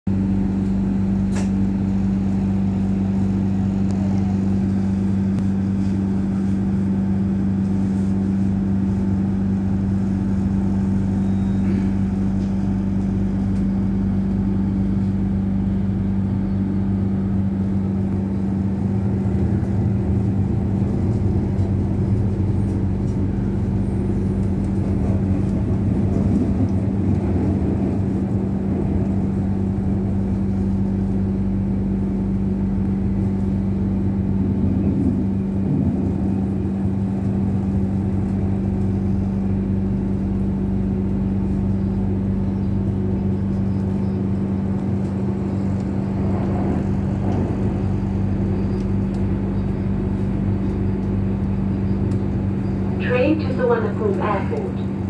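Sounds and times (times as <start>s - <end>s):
electric train running: 17.6s - 31.2s.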